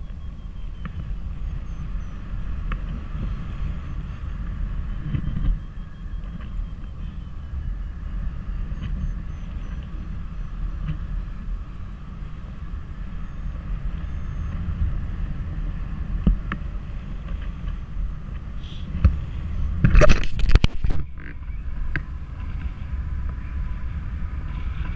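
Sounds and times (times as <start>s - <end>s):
wind buffeting microphone: 0.0s - 24.9s
sharp knocks and rustles: 19.8s - 21.4s.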